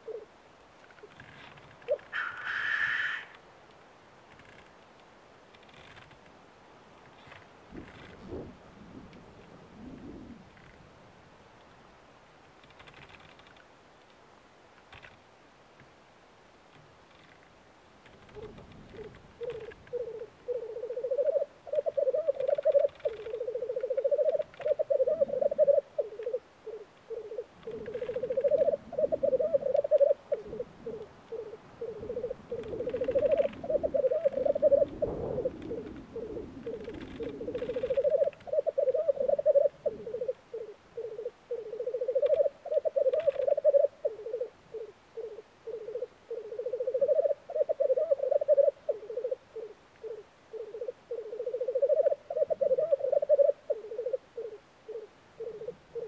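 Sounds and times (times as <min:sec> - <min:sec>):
grouse bubbling cooing warble: 0:00.0 - 0:00.3, 0:07.7 - 0:10.6, 0:18.4 - 0:56.0.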